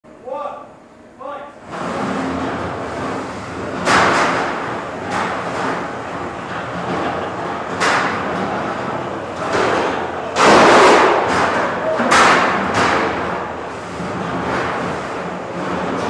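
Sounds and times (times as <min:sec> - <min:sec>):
combat robots colliding: 0:09.5 - 0:13.5.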